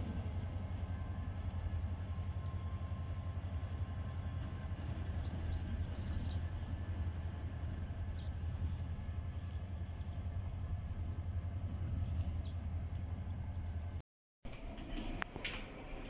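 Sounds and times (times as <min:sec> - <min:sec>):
diesel locomotive rumbling: 0:00.0 - 0:16.0
bird chirping: 0:04.8 - 0:06.5.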